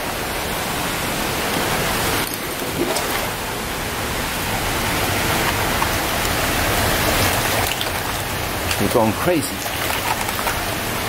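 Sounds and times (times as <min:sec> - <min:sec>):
water rushing: 0:00.0 - 0:11.0
faint splashes: 0:02.2 - 0:03.8, 0:04.9 - 0:11.0.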